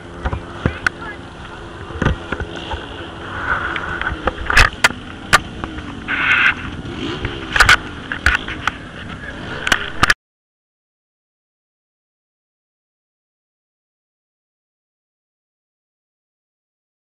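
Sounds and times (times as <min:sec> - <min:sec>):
vehicle engine running: 0:00.0 - 0:10.2.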